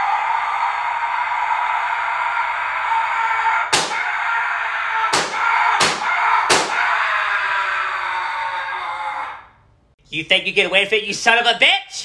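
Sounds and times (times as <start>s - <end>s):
sharp bangs: 3.7s - 4.1s, 5.1s - 6.9s.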